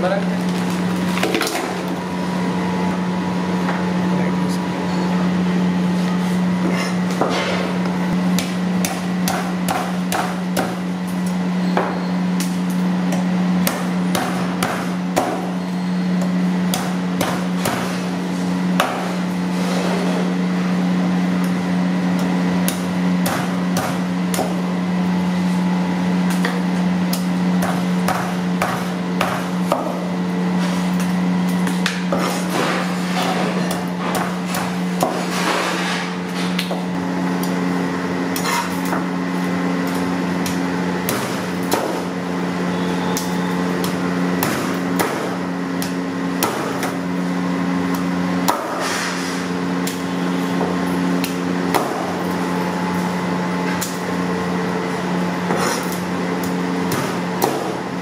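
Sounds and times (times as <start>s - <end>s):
cleaver chopping frozen fish: 8.2s - 10.9s, 12.4s - 15.6s, 16.2s - 18.1s, 22.6s - 24.6s, 26.3s - 30.0s, 33.4s - 35.4s, 39.8s - 42.2s, 43.1s - 47.0s, 55.5s - 57.8s.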